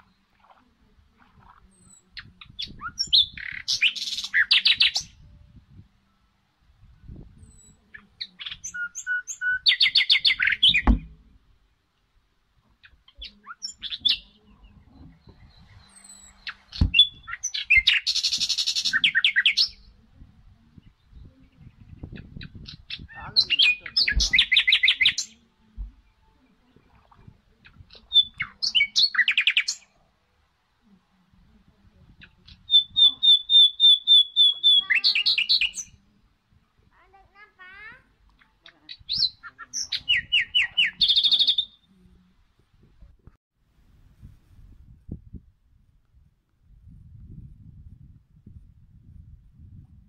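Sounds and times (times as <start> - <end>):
birds chirping in trills: 12.8 - 19.9.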